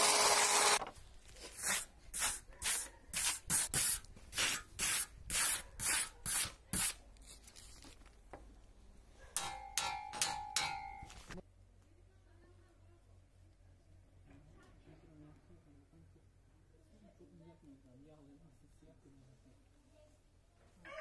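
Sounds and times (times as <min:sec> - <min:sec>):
saw blade scrubbed with abrasive: 0:01.4 - 0:07.0.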